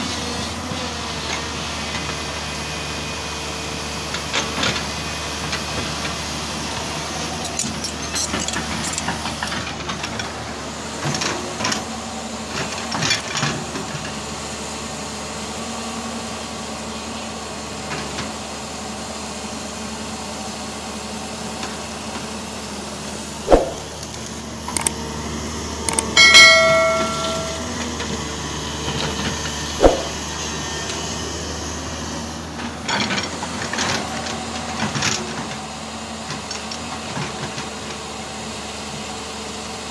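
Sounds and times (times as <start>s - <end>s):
excavator diesel engine running: 0.0s - 39.9s
sharp knocks: 23.5s - 23.9s, 29.8s - 30.2s
loud pitched tone: 26.2s - 27.8s, 29.8s - 30.2s
metal clanking: 26.2s - 27.8s.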